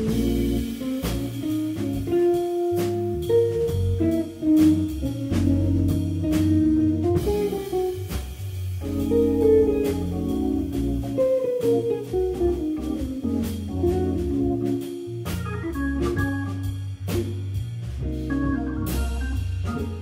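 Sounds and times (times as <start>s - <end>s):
electric guitar lead lines: 0.0s - 17.4s, 18.0s - 20.0s
drum kit with cymbals: 0.0s - 20.0s
walking bass: 0.0s - 20.0s.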